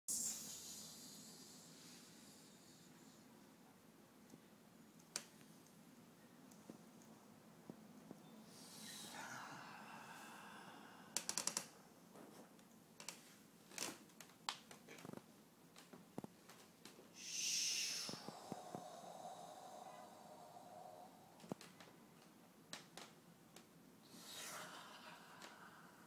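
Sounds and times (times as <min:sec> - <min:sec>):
loud mouth hiss: 0:00.1 - 0:03.2, 0:08.5 - 0:11.3, 0:17.2 - 0:21.6, 0:24.0 - 0:26.0
breathy rasping exhale: 0:08.5 - 0:11.4, 0:17.2 - 0:21.5, 0:24.0 - 0:26.0.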